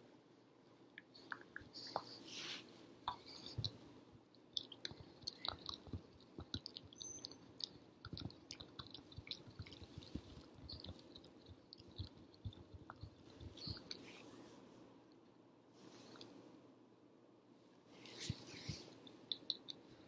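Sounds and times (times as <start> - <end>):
wet mouth sounds: 3.1 - 3.8, 4.4 - 14.2, 18.2 - 19.9.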